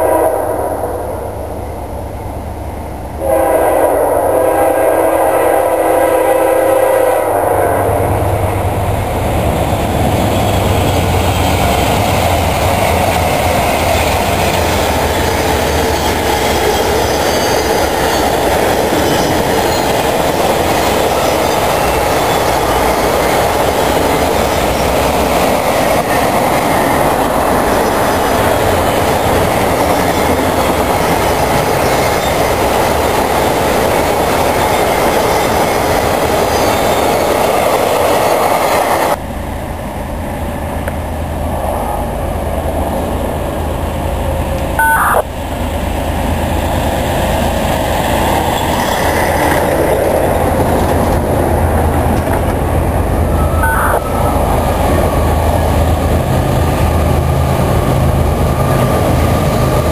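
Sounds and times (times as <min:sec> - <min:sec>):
train horn chord: 0:00.0 - 0:00.9, 0:03.2 - 0:08.1
train wheels rumbling on rails: 0:00.0 - 0:59.9.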